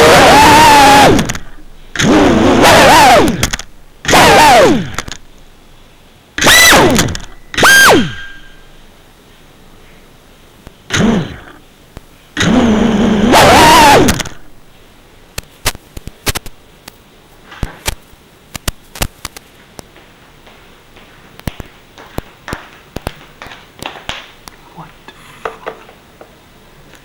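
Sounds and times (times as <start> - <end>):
drone motors spinning up: 0.0 - 5.2, 6.4 - 8.5, 10.9 - 11.6, 12.4 - 14.4
sharp clicks: 1.1 - 2.3, 3.2 - 4.2, 4.8 - 5.5, 14.0 - 14.4, 15.3 - 17.0.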